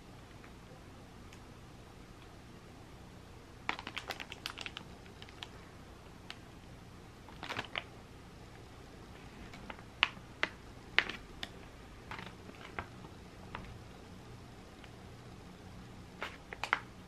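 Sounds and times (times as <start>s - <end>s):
plastic packaging crinkling: 3.7s - 5.6s, 7.3s - 7.9s, 9.5s - 13.1s, 16.2s - 17.0s.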